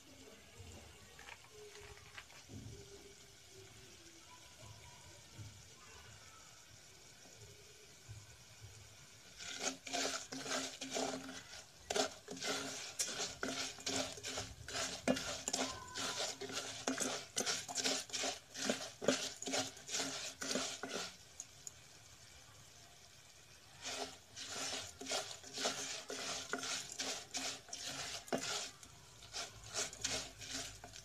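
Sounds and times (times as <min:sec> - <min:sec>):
pasta frying in oil: 0:00.0 - 0:31.0
spoon scraping metal pot: 0:09.3 - 0:21.6, 0:23.8 - 0:31.0.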